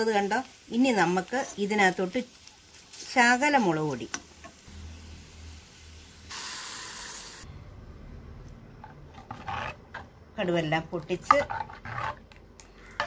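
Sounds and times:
hot oil sizzling: 0.0 - 7.5.

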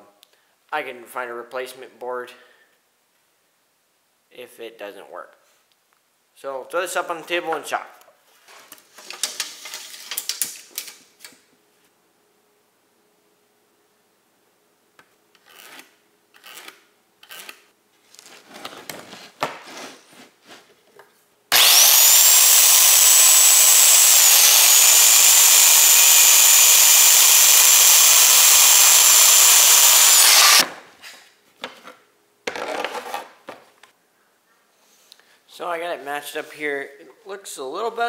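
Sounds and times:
circular saw cutting wood: 21.5 - 30.7.

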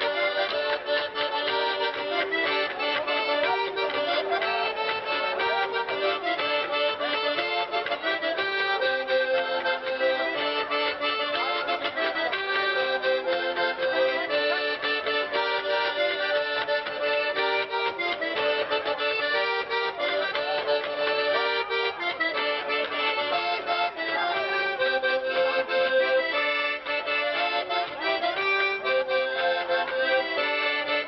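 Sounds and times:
folk dance music over loudspeaker: 0.0 - 31.0.

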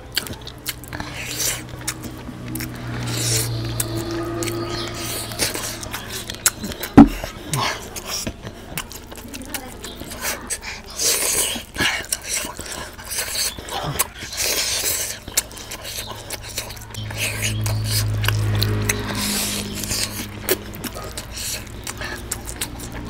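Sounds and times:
slurping: 0.0 - 23.0
wet chewing: 0.0 - 23.0
lip smacks: 5.4 - 23.0
sharp loud knock: 7.0 - 7.2.

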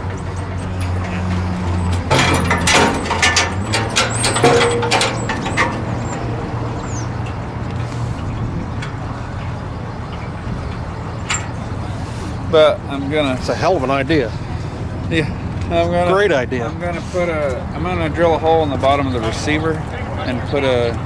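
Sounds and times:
metal clanks and knocks: 0.0 - 11.8
low engine hum: 0.0 - 21.0.

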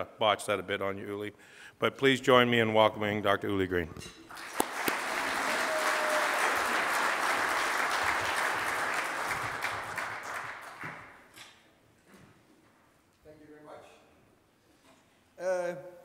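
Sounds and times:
audience applauding: 4.3 - 11.2.

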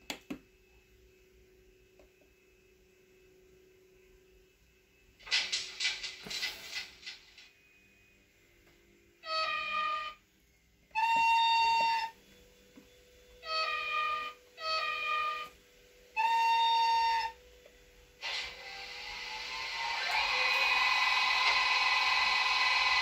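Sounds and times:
jet-like simulated motor sound: 0.6 - 23.0
model train horn blasts: 9.2 - 10.2, 10.9 - 12.2, 13.4 - 17.4.

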